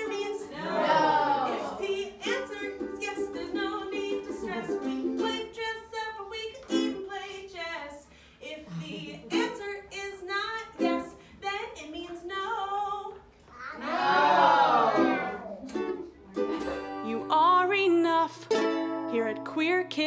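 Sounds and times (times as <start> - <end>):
person singing: 0.0 - 5.6
ukulele strumming: 0.0 - 7.4, 9.0 - 11.2, 14.8 - 20.0.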